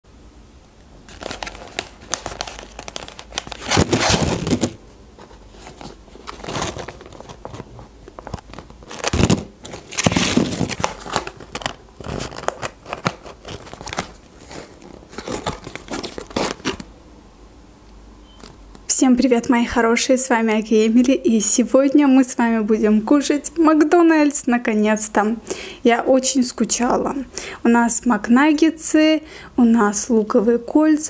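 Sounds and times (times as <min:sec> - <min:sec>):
paper packaging rustling: 0:01.1 - 0:16.9.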